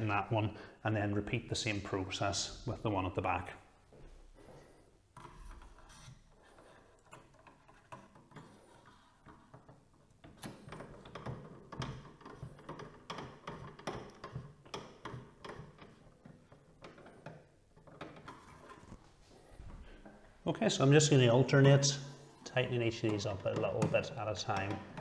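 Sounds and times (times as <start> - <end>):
screwdriver scraping: 5.2 - 9.8.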